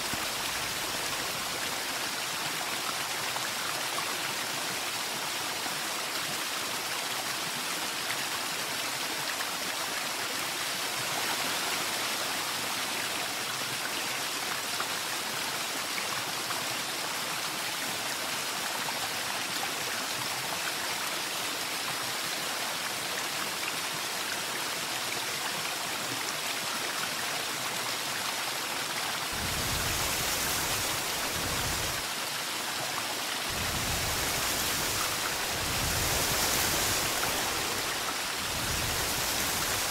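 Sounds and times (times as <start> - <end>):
rushing water: 0.0 - 39.9.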